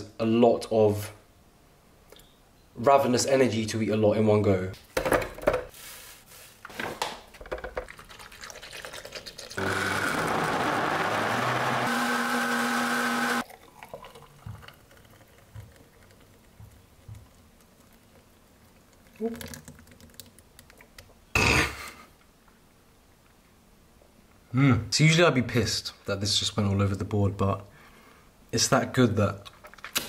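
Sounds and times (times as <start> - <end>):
blender running: 9.6 - 13.4.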